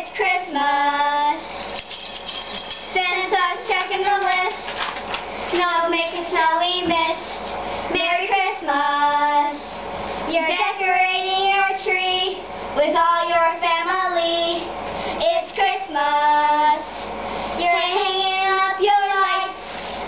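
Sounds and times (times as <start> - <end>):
girls singing unaccompanied: 3.0 - 4.6, 5.5 - 7.2, 7.9 - 9.6, 10.3 - 16.8, 17.6 - 19.6.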